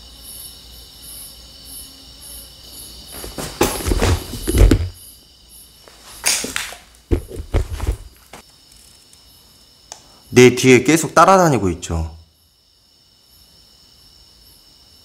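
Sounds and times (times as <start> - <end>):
crickets chirping: 0.0 - 15.0
equipment rustling and knocking: 3.1 - 5.0, 6.3 - 8.4.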